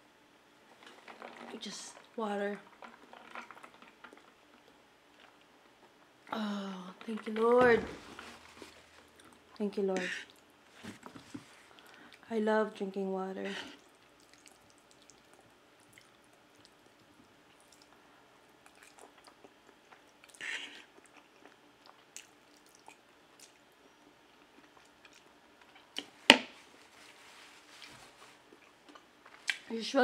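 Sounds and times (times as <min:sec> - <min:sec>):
person chewing: 0:13.6 - 0:18.0, 0:18.6 - 0:23.7, 0:24.4 - 0:26.1, 0:27.8 - 0:29.6.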